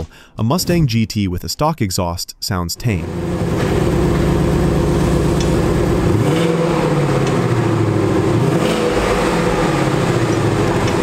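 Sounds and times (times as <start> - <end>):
car engine exhaust note: 3.0 - 11.0.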